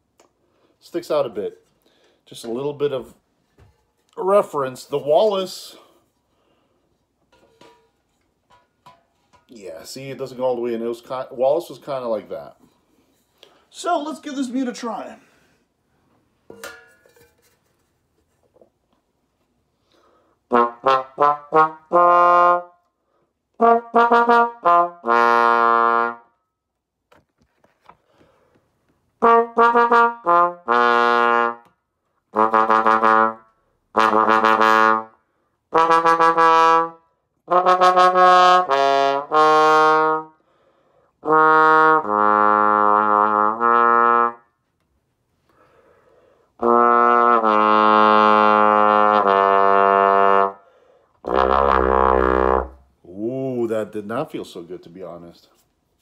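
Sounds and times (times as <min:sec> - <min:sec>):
muted bass trombone playing: 0:20.5 - 0:22.8, 0:23.6 - 0:26.3, 0:29.2 - 0:31.7, 0:32.3 - 0:40.4, 0:41.2 - 0:44.4, 0:46.6 - 0:50.6, 0:51.2 - 0:52.9.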